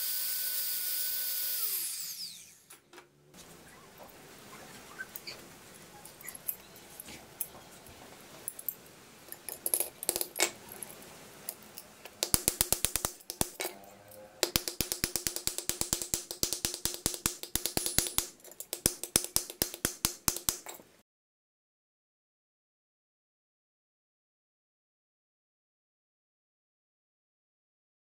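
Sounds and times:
hammer tapping on metal frame: 14.4s - 20.8s.

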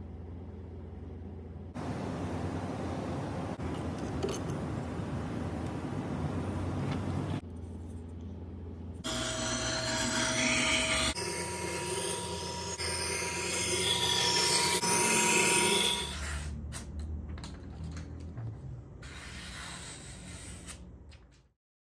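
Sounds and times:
sharpening grinder running: 9.0s - 16.6s.

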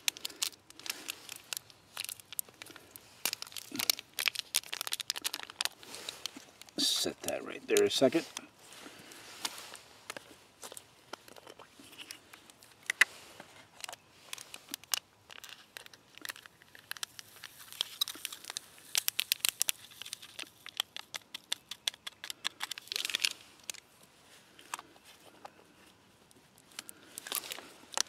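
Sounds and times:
plastic pouch crinkling: 0.0s - 8.4s, 13.7s - 23.9s, 26.6s - 28.0s.

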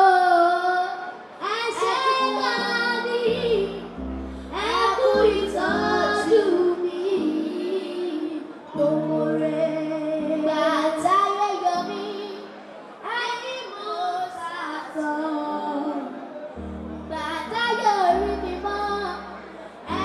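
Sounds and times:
girls singing: 0.0s - 16.2s, 17.0s - 20.0s
backing chords: 16.6s - 20.0s.

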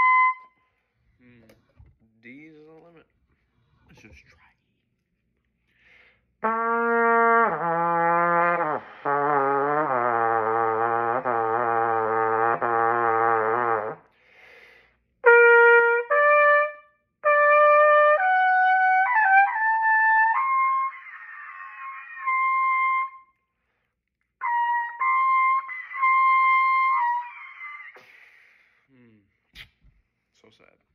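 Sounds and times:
solo trumpet notes: 6.4s - 14.1s, 15.2s - 23.2s, 24.4s - 28.0s.

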